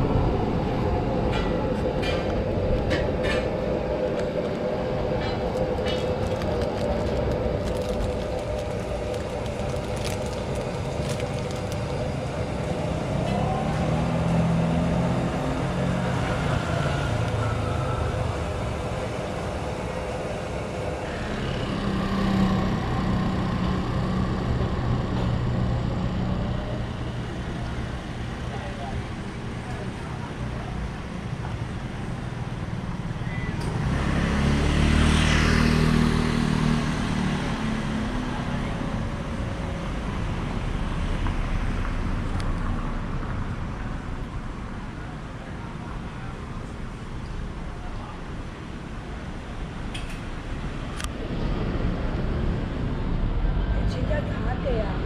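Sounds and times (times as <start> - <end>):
street traffic rumble: 0.0 - 55.0
vehicle engine passing: 33.7 - 39.5.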